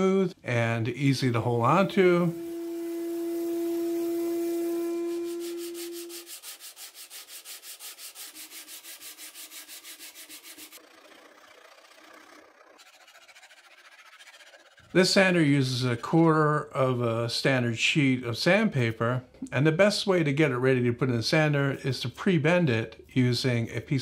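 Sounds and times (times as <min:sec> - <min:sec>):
belt sander humming: 0:01.6 - 0:15.0
sanding sponge rubbing wood: 0:02.2 - 0:15.0
file rasping on wood: 0:05.2 - 0:15.0.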